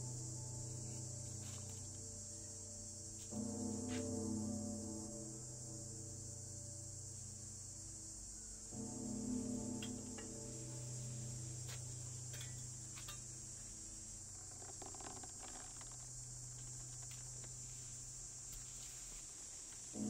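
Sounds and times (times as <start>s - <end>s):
high-pitched hiss: 0.0s - 20.0s
low steady hum: 0.0s - 20.0s
soft rustle: 10.4s - 20.0s
faint ticks: 11.6s - 18.8s.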